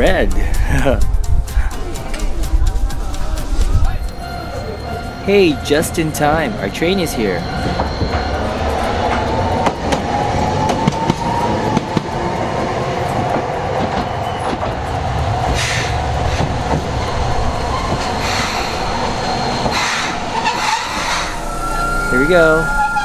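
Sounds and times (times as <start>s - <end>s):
streetcar motor whine: 1.8s - 23.0s
air brakes hissing: 15.5s - 16.7s, 18.0s - 23.0s.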